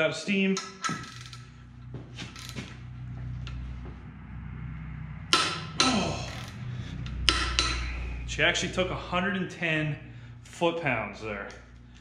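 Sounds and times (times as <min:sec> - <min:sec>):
torque wrench ratcheting clicks: 0:00.6 - 0:01.5.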